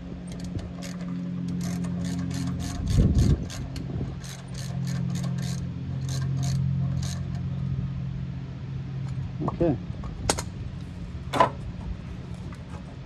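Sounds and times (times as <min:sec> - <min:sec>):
steady low hum: 0:00.0 - 0:13.0
hand ratchet clicking: 0:00.3 - 0:07.4.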